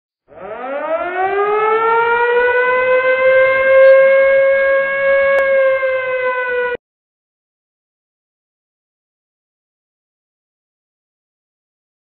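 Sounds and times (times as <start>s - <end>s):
siren wailing: 0.3s - 6.8s.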